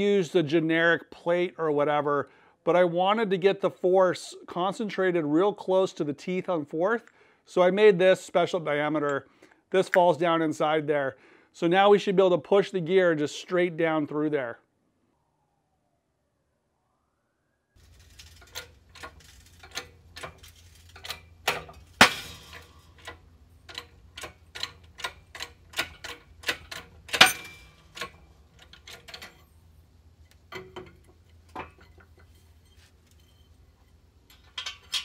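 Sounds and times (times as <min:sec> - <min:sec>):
loud metal cracks: 0:17.8 - 0:29.5
sharp metallic clicks: 0:18.4 - 0:29.4.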